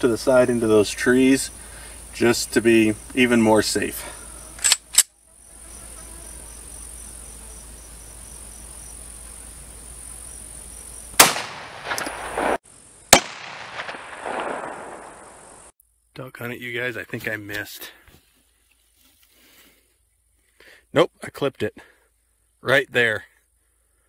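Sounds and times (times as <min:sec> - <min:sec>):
insect chirping: 0:00.0 - 0:16.9, 0:18.2 - 0:24.0
pistol shots: 0:11.2 - 0:15.5.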